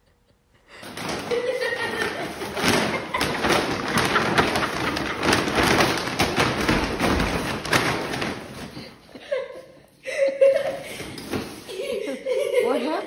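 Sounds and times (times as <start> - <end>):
bag rustling on tile floor: 0.9 - 9.1.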